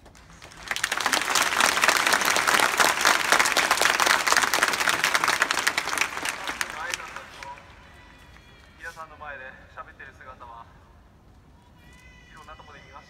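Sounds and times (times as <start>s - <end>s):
crowd applauding: 0.0s - 8.8s.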